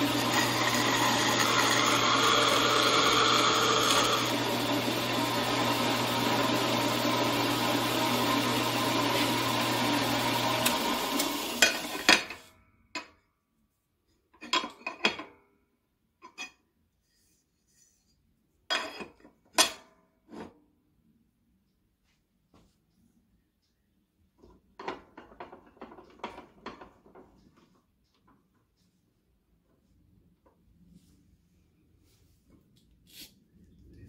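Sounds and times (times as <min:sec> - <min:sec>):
bandsaw cutting metal: 0:00.0 - 0:12.3.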